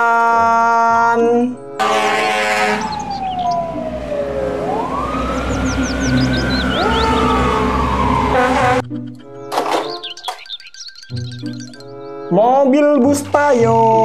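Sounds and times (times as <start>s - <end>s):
fire engine siren wailing: 1.8s - 8.8s
low traffic rumble: 1.8s - 9.0s.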